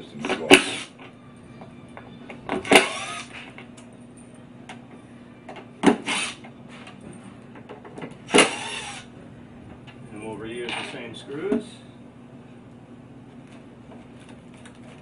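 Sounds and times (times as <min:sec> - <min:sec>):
cordless drill running: 0:02.7 - 0:03.3, 0:08.4 - 0:09.1.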